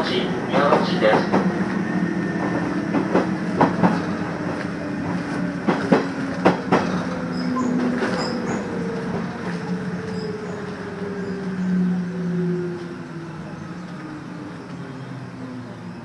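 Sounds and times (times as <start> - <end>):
train wheels clicking over rail joints: 0.6 - 10.8
train braking whine: 1.6 - 16.0.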